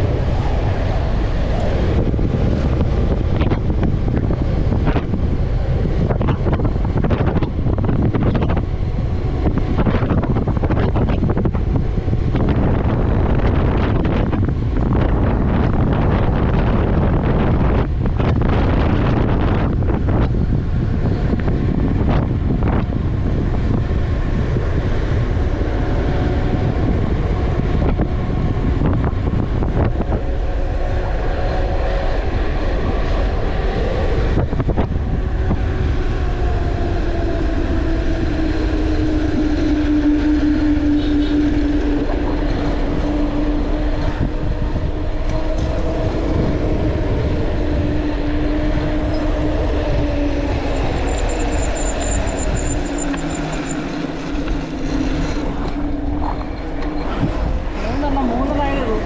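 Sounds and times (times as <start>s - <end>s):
steady humming tone: 0.0s - 59.0s
wind rushing over microphone: 0.0s - 59.0s.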